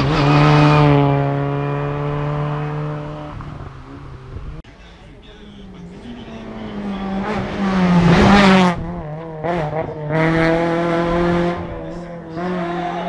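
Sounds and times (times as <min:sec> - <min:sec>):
rally car engine revving: 0:00.0 - 0:13.0.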